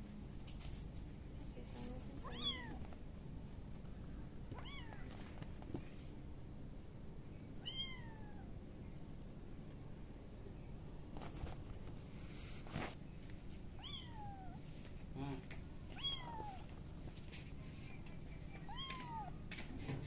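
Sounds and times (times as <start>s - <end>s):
kitten mewing: 2.2s - 2.8s, 4.5s - 5.2s, 7.6s - 8.5s, 13.8s - 14.6s, 16.0s - 16.7s, 18.6s - 19.4s.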